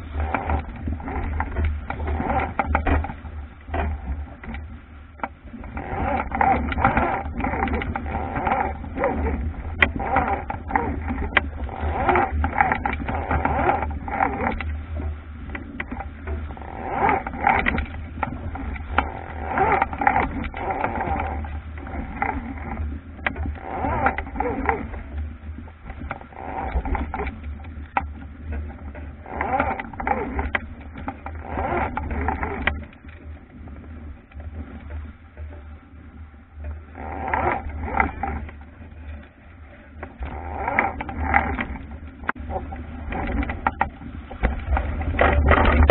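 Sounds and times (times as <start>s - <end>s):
wind buffeting microphone: 37.4s - 45.9s.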